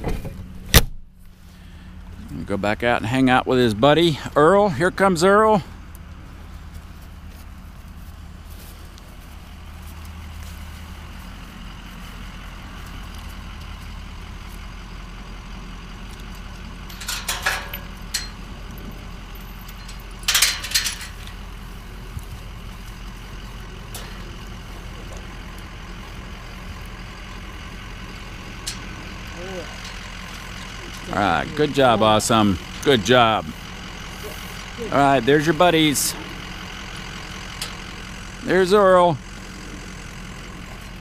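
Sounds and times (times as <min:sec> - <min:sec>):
truck engine idling: 0:00.0 - 0:41.0
metal gate clattering: 0:16.4 - 0:21.6, 0:23.8 - 0:25.2, 0:27.8 - 0:31.1.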